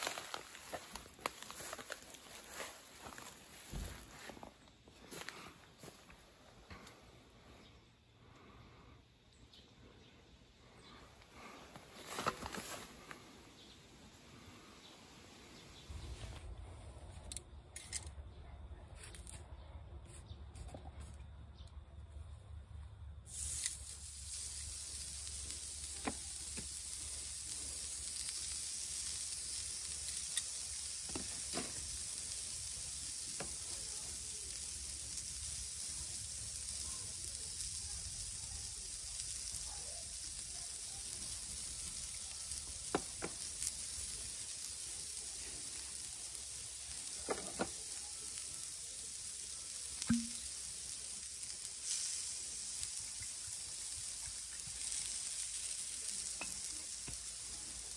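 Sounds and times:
steaks sizzling on grill: 0:00.0 - 0:04.4, 0:23.3 - 0:57.9.

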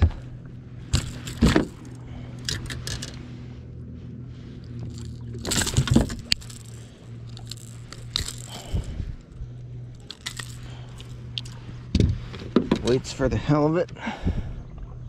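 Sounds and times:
steady low hum: 0:00.0 - 0:15.0
fishing pliers clicking and clinking: 0:00.9 - 0:03.2, 0:04.8 - 0:09.3, 0:10.0 - 0:11.6.

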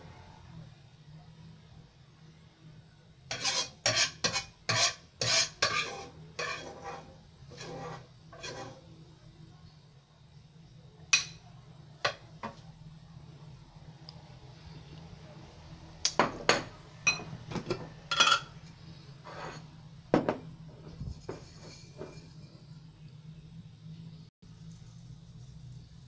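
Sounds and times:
metal spoon scraping frying pan: 0:03.3 - 0:09.0, 0:18.0 - 0:19.8, 0:20.8 - 0:22.8.

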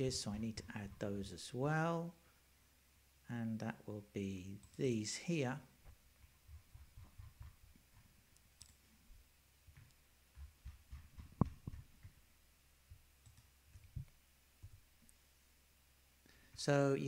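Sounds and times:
computer mouse clicks: 0:13.2 - 0:14.1.

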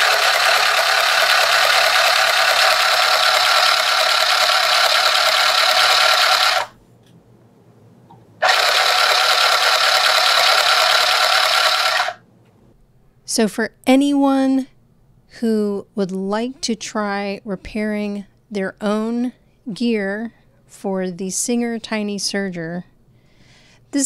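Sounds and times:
serger sewing machine running: 0:00.0 - 0:06.7, 0:08.4 - 0:12.2.

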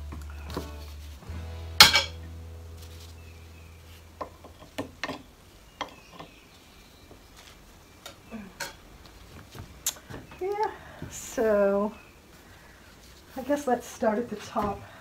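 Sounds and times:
background music: 0:00.0 - 0:04.7.

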